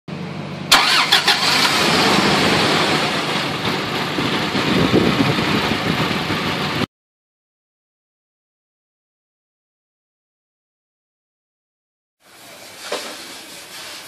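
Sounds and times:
engine starting and running: 0:00.1 - 0:06.9.

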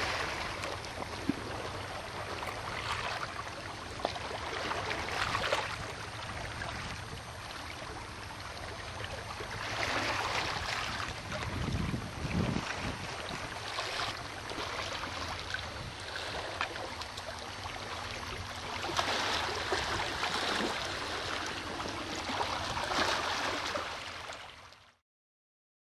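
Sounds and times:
water rushing at shoreline: 0:00.0 - 0:25.0
wind noise: 0:10.8 - 0:13.7.

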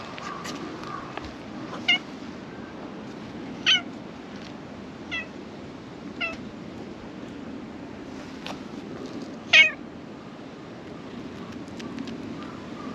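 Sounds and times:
cat meowing: 0:03.6 - 0:03.9, 0:05.1 - 0:05.3, 0:06.2 - 0:06.4, 0:09.5 - 0:09.8.

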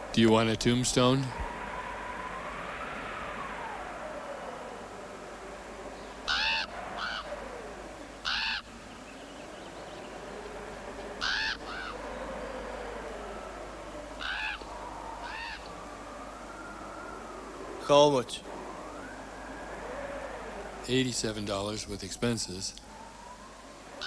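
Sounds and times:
faint rising and falling tone: 0:00.0 - 0:24.0
crow cawing: 0:06.2 - 0:08.8, 0:11.2 - 0:13.0, 0:14.2 - 0:15.8.

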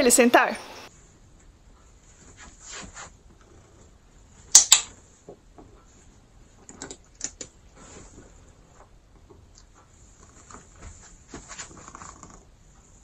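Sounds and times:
faint rustling: 0:00.9 - 0:06.7, 0:07.6 - 0:13.0.

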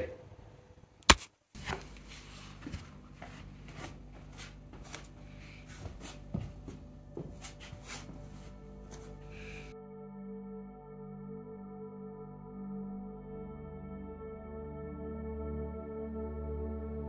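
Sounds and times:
low room hum: 0:00.0 - 0:09.8
barefoot taps and rustles on mat: 0:01.1 - 0:09.3.

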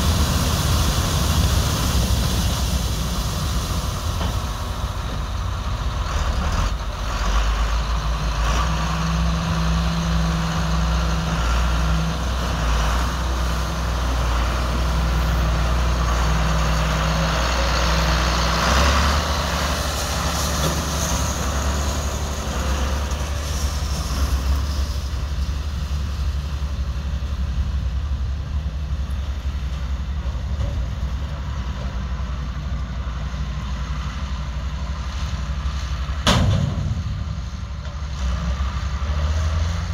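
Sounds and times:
grain auger unloading: 0:00.0 - 0:07.6
tractor diesel engine running: 0:00.0 - 0:39.9.

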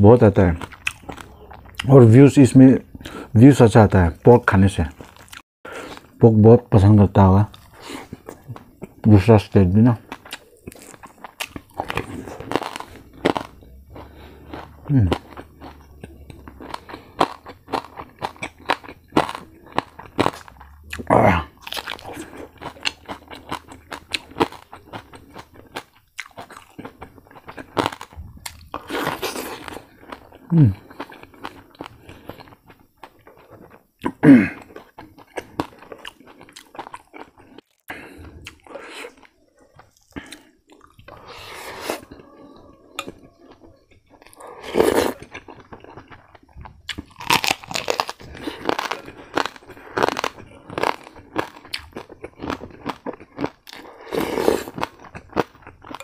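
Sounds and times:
crunching and chewing: 0:00.2 - 0:03.3, 0:04.2 - 0:06.2, 0:07.4 - 0:56.0
low vocal sounds: 0:13.5 - 0:17.2, 0:20.4 - 0:22.5, 0:30.4 - 0:30.9.

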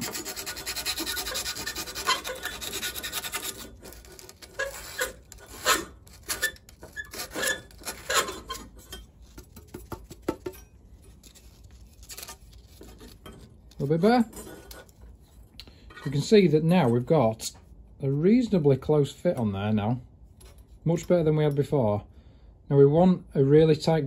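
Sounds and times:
emery cloth scraping steel tube: 0:00.0 - 0:17.6.

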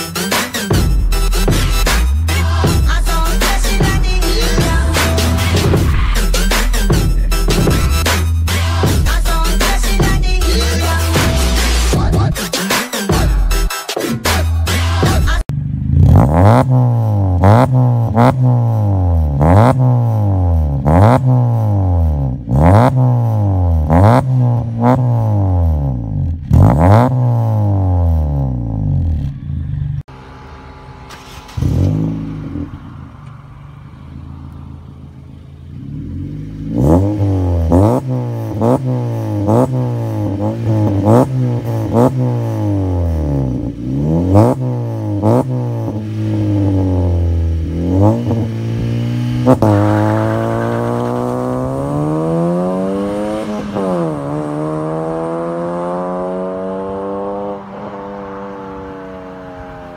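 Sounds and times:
car engine revving: 0:00.0 - 0:59.9
car accelerating away: 0:15.7 - 0:59.9.

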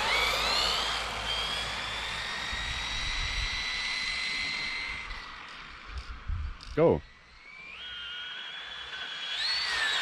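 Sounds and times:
electric motor whining: 0:00.0 - 0:10.0.

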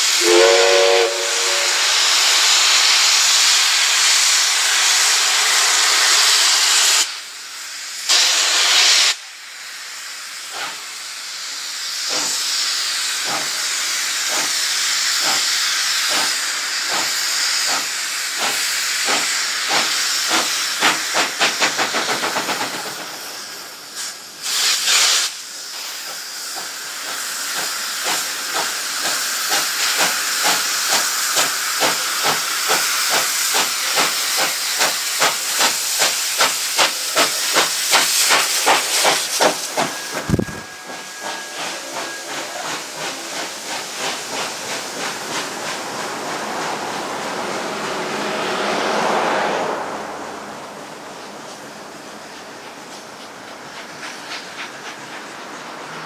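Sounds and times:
steam hissing from cylinders: 0:00.0 - 0:49.8, 0:50.4 - 0:56.0
steam locomotive exhaust beats: 0:00.0 - 0:56.0.

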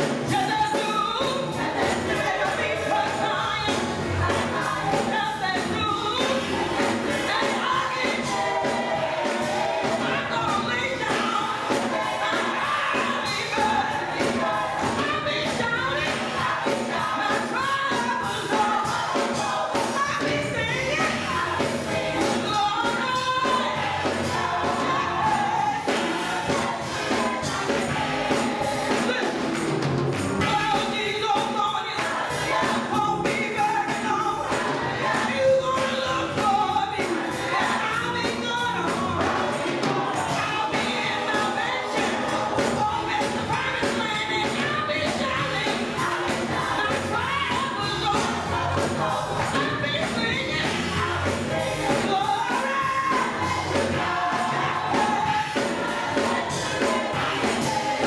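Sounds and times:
gospel choir singing: 0:00.0 - 0:58.0
keyboard accompaniment: 0:00.0 - 0:58.0
steady beat: 0:41.5 - 0:58.0.

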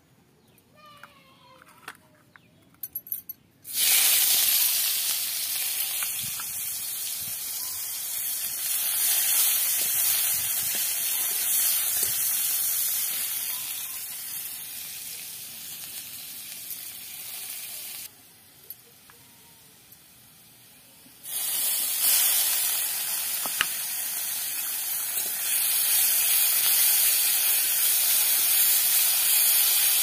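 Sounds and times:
food sizzling in hot oil: 0:03.7 - 0:18.1, 0:21.2 - 0:30.0.

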